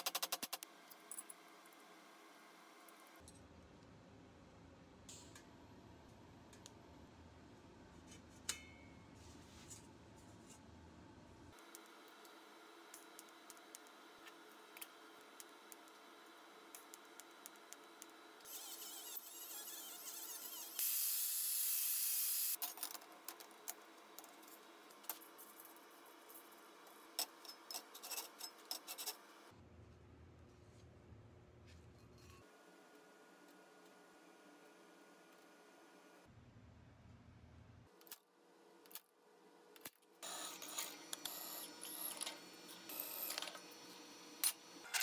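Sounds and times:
welding arc hissing: 18.4s - 22.6s.

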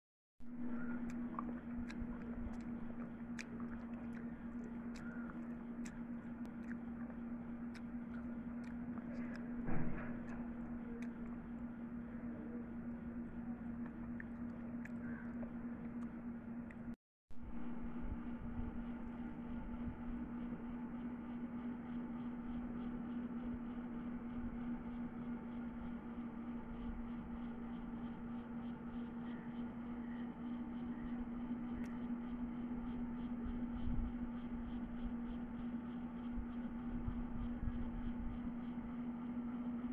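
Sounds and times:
low hum: 0.4s - 39.9s
fingers mixing rice: 0.7s - 12.0s.

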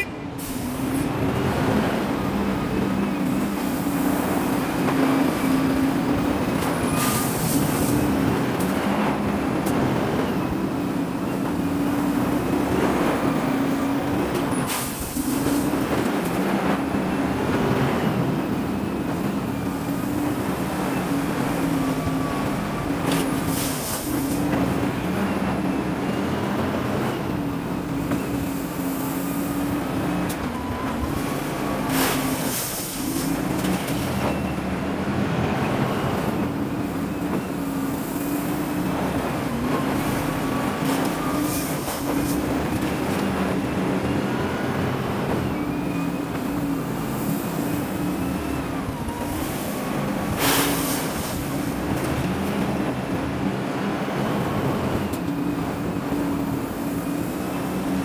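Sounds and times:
wheel loader diesel engine: 0.0s - 58.0s.

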